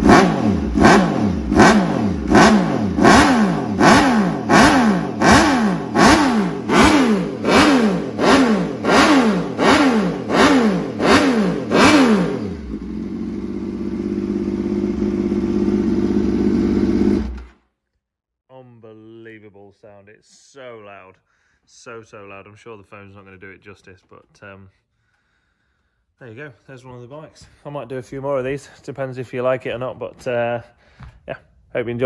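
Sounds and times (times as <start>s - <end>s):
motorcycle engine revving: 0.0s - 17.6s
motorcycle engine idling: 1.4s - 17.6s.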